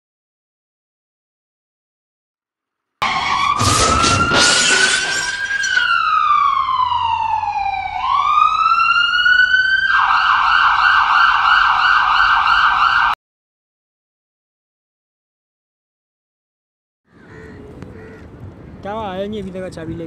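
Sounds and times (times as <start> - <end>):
emergency vehicle siren: 3.0 - 13.2.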